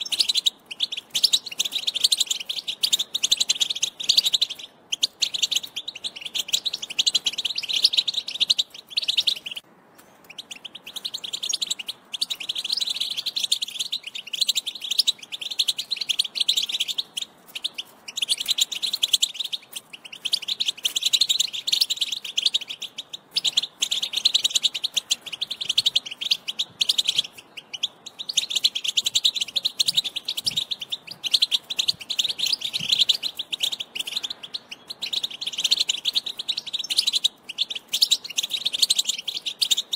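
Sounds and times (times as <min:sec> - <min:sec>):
goldfinch twittering and trills: 0:00.0 - 0:09.6, 0:10.2 - 0:39.9.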